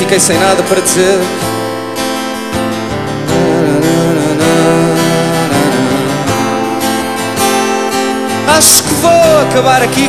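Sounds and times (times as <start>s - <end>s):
acoustic guitar strumming: 0.0s - 10.0s
wavering melody line: 3.0s - 8.4s.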